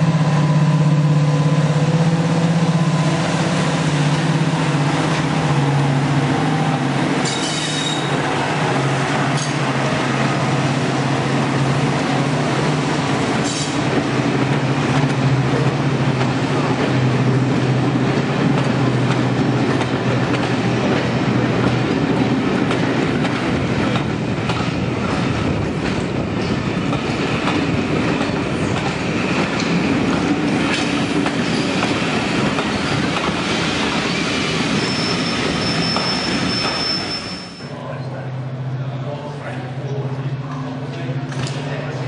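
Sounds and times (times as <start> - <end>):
locomotive engine drone: 0.0 - 37.0
high wheel squeal: 7.2 - 8.2, 34.0 - 37.8.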